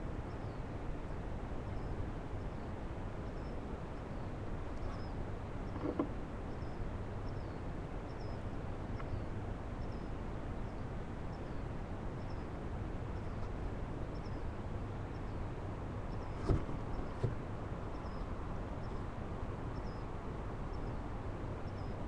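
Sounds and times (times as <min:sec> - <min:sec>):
microphone hiss and hum: 0:00.0 - 0:22.0
faint high-pitched chirp: 0:03.3 - 0:05.8, 0:06.5 - 0:11.6, 0:17.9 - 0:19.0, 0:19.8 - 0:20.1, 0:21.6 - 0:22.0.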